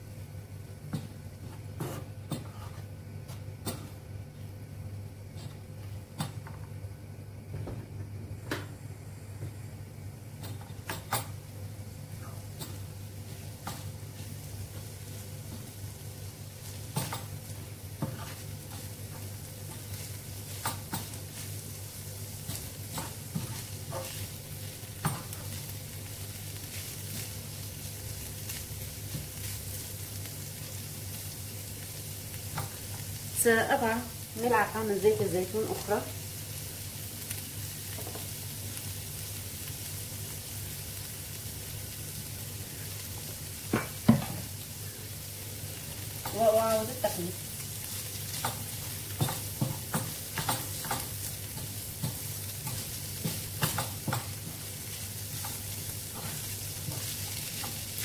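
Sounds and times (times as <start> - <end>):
wooden spoon scraping a pan: 1.8 - 2.9, 17.0 - 21.6, 22.4 - 24.4, 48.3 - 58.0
meat sizzling in a frying pan: 10.3 - 58.0.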